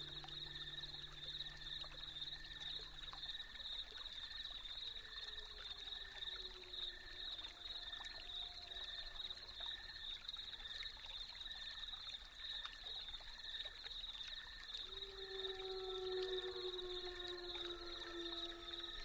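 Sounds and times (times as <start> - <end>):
soft gliding tones: 0.0 - 4.2.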